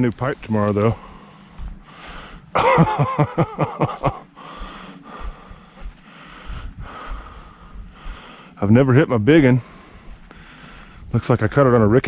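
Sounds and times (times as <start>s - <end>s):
man laughing breathily: 1.0s - 8.6s.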